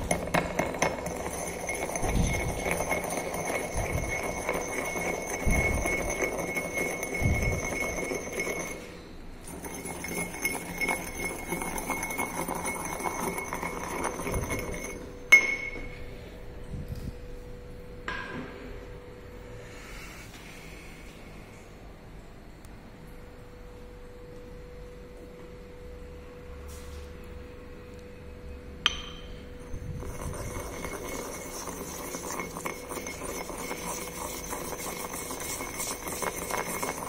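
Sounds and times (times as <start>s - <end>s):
pestle grinding in mortar: 0.0s - 15.8s, 29.6s - 37.0s
pestle clinking in mortar: 0.0s - 16.0s, 28.9s - 37.0s.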